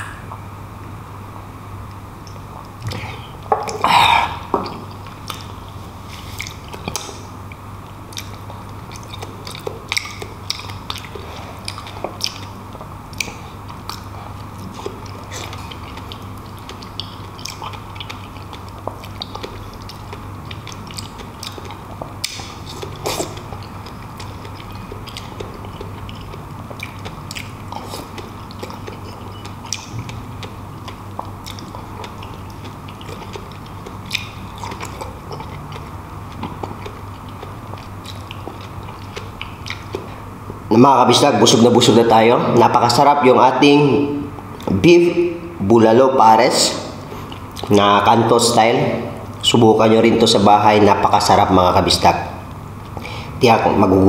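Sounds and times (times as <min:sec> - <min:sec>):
close chewing with mouth clicks: 0:04.6 - 0:40.6, 0:47.1 - 0:47.7.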